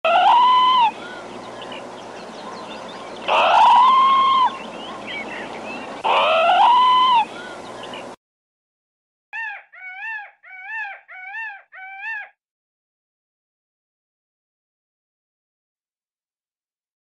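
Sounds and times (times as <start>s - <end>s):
parrot calling: 0.0s - 8.1s, 9.4s - 12.4s
bird chirps: 0.9s - 8.2s.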